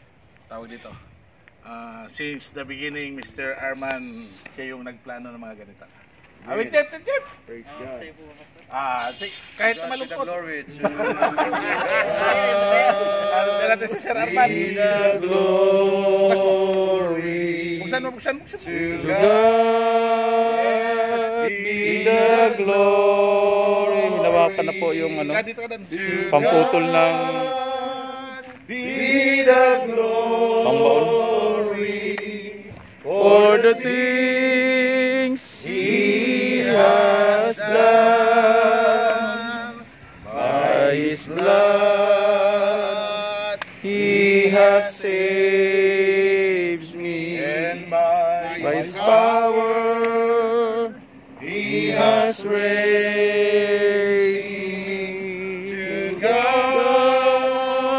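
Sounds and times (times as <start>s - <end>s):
man singing with vibrato: 18.6s - 57.9s.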